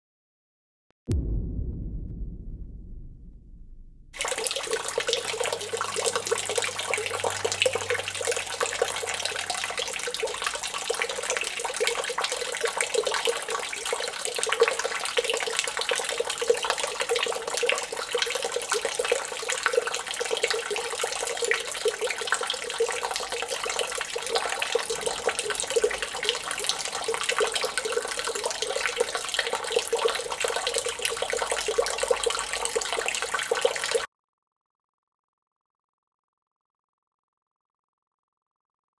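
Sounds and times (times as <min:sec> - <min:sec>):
fountain water splashing: 0:04.2 - 0:34.1.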